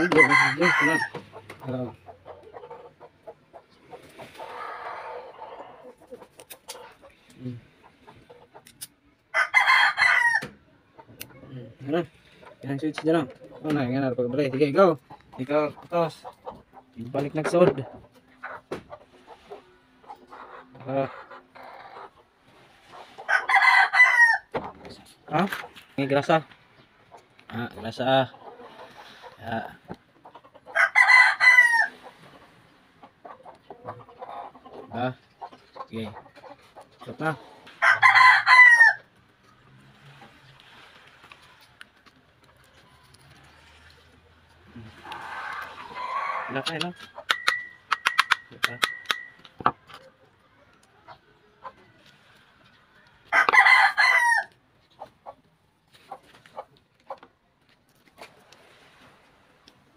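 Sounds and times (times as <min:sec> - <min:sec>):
rooster crowing: 0:00.0 - 0:01.2, 0:09.3 - 0:10.6, 0:23.3 - 0:24.5, 0:30.7 - 0:32.0, 0:37.8 - 0:39.1, 0:53.0 - 0:54.6
chickens clucking: 0:00.0 - 0:59.9.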